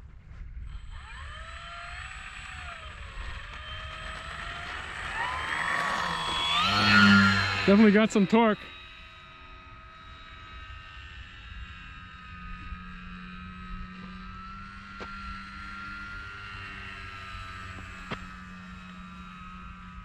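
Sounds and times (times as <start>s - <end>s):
wind rumble on microphone: 0.0s - 1.6s
model plane motor whining: 0.6s - 20.0s.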